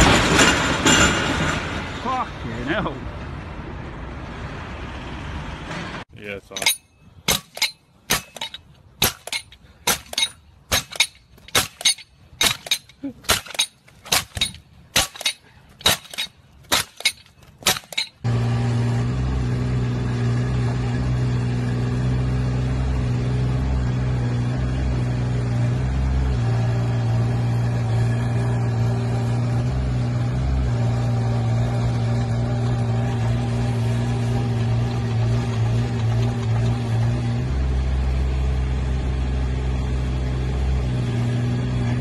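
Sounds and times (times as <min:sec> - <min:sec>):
mini excavator engine running: 0:15.2 - 0:42.0.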